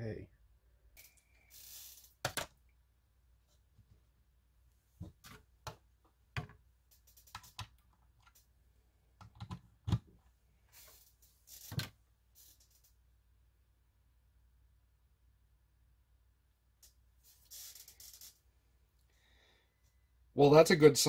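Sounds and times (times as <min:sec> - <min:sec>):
phone and cable clicks and taps: 0:09.2 - 0:10.1.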